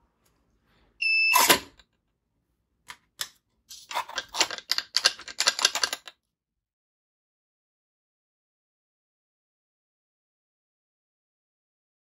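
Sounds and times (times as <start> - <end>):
short high buzzer beep: 1.0 - 1.6
clicks and scrapes: 2.9 - 6.1.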